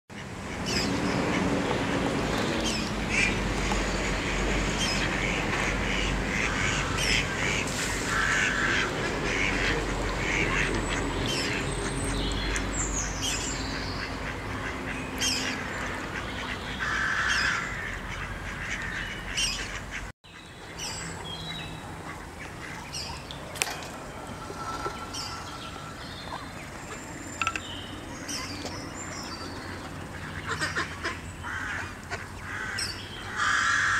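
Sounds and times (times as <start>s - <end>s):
ducks quacking: 3.0s - 12.7s, 13.7s - 20.1s, 21.9s - 23.3s, 29.6s - 33.9s.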